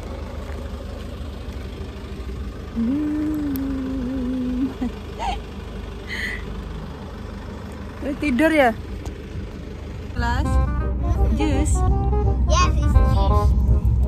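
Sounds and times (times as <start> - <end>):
car engine idling: 0.0 - 14.0
held humming tone: 1.8 - 7.3.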